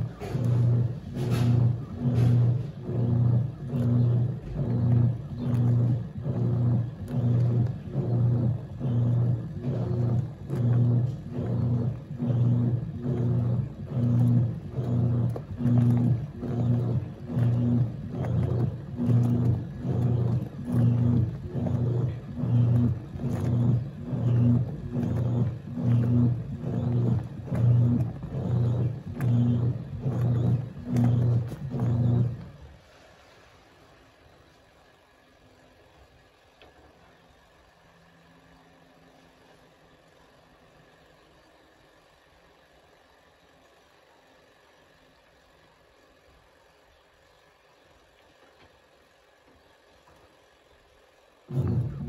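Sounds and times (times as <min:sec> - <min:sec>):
washing machine agitating water: 0:00.0 - 0:37.8, 0:43.5 - 0:52.0.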